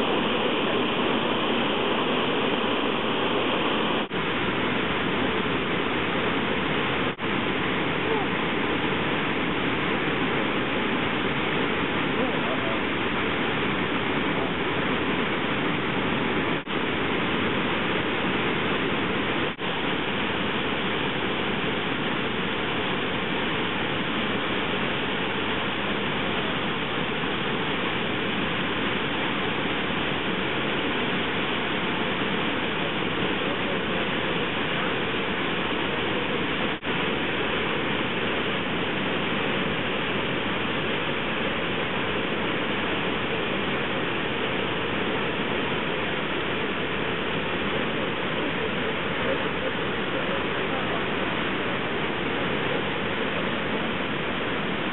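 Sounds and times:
waterfall rushing: 0.0 - 54.9.

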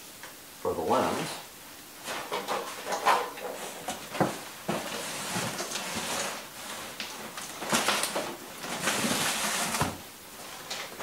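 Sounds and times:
cardboard boxes rustling and scraping: 2.0 - 11.0.

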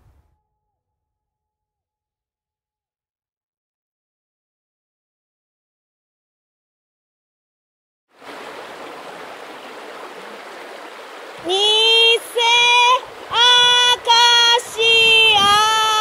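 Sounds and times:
river rushing over stones: 8.2 - 16.0
high voice calling out: 11.4 - 16.0.

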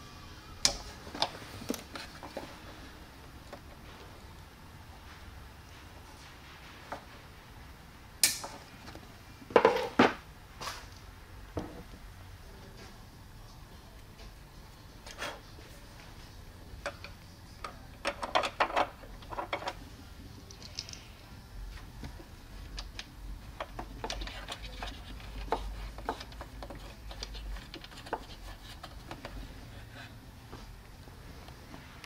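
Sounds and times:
wires and screws clicking: 16.8 - 19.8, 20.4 - 21.1, 22.6 - 29.4.

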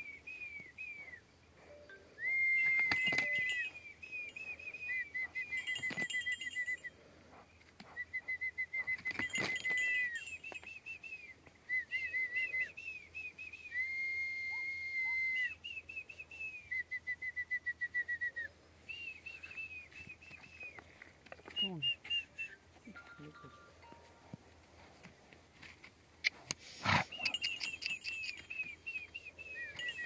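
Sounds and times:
high-pitched whistling: 1.8 - 6.9, 27.2 - 30.0.

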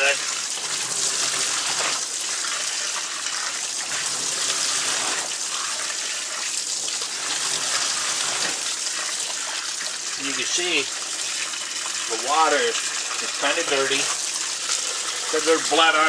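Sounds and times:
tap water running into sink: 0.0 - 16.0.

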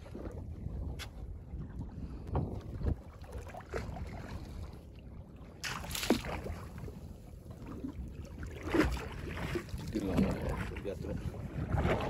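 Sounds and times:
wind buffeting microphone: 0.0 - 12.0
water splash: 5.6 - 6.9, 8.4 - 10.8.

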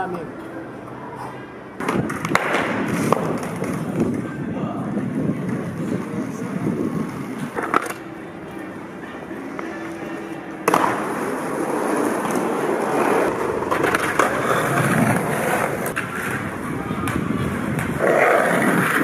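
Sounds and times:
skateboard wheels on stone paving: 1.8 - 19.0.

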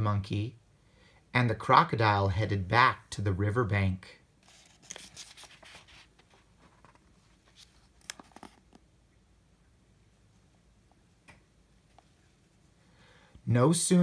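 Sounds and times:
paper page turning: 4.4 - 8.8.

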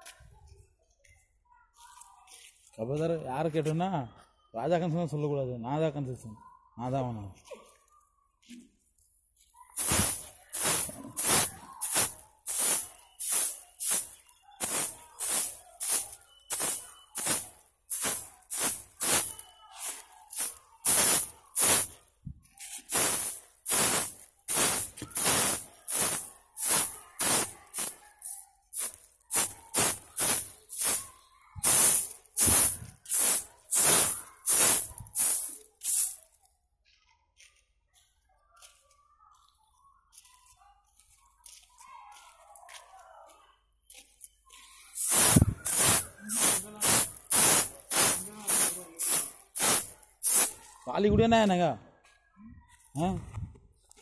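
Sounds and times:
stiff broom sweeping sandy ground: 9.8 - 22.0, 22.6 - 36.3, 44.8 - 50.7.

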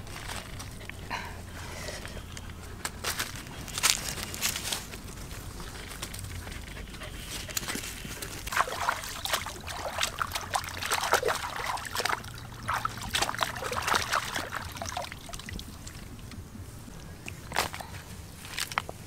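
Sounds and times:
water sloshing and splashing: 3.8 - 17.9.

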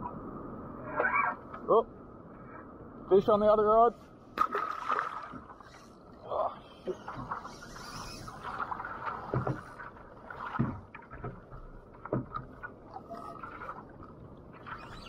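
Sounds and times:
water lapping against kayak hull: 4.4 - 15.0
dull knocks: 9.2 - 9.7, 10.5 - 12.6.

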